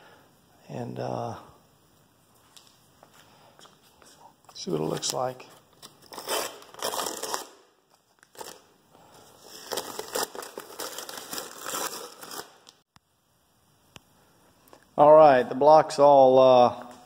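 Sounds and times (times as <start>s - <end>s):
masking tape peeling and crinkling: 4.6s - 8.7s, 9.4s - 12.8s.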